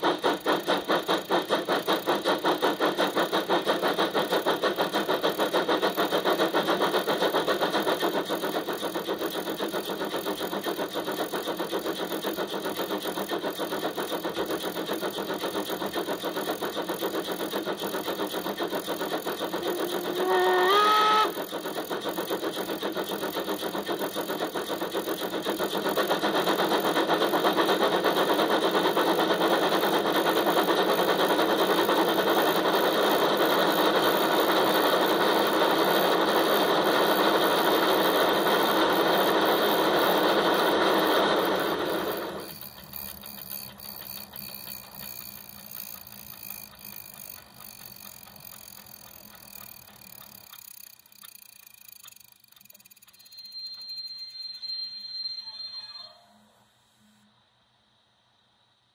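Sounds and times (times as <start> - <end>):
steam locomotive chuffing: 0.0 - 56.2
steam whistle: 19.9 - 21.4, 53.4 - 56.6.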